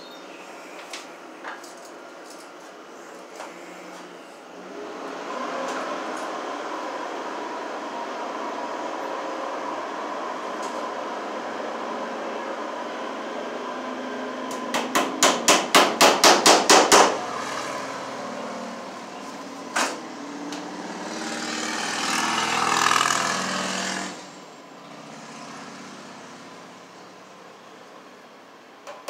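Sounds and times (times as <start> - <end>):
hammer tapping a staple into wood: 14.7 - 17.2.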